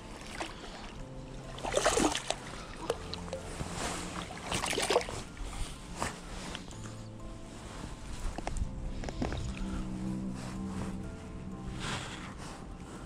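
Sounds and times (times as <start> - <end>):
fish splashing in water: 1.5 - 3.2, 4.2 - 5.2.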